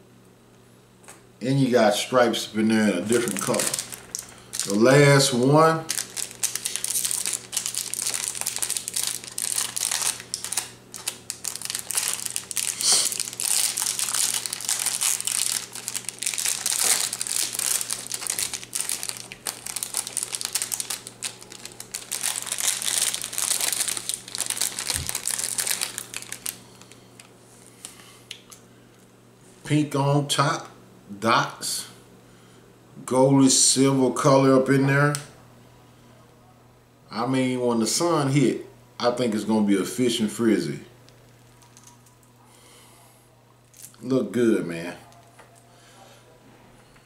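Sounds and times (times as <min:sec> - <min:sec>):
plastic packaging crinkling: 0:02.9 - 0:28.6, 0:41.1 - 0:42.4, 0:43.7 - 0:44.0.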